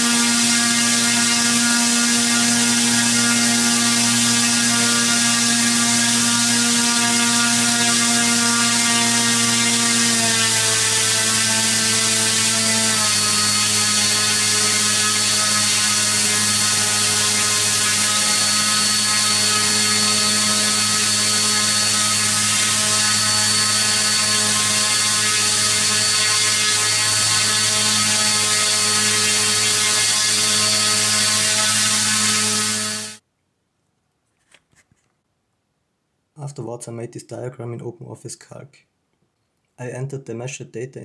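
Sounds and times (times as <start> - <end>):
electric motor hum and whine: 0.0 - 33.2
propeller air rush: 13.1 - 33.2.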